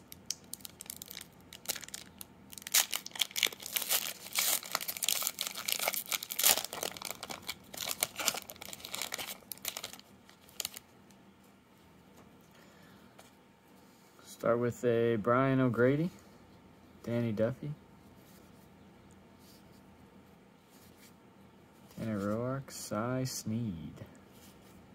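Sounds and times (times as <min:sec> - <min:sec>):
wrapper tearing and crinkling: 0:00.3 - 0:10.8.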